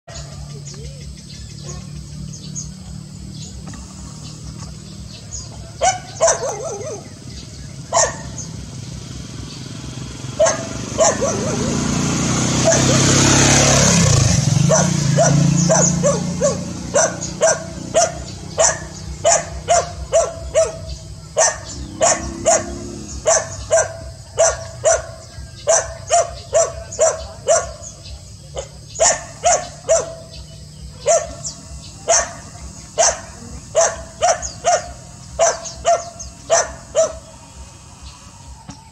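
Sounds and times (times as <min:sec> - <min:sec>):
birds chirping: 0:00.0 - 0:38.9
steady low hum: 0:00.1 - 0:38.9
dog barking loudly: 0:05.8 - 0:07.2, 0:07.9 - 0:08.6, 0:10.3 - 0:37.4.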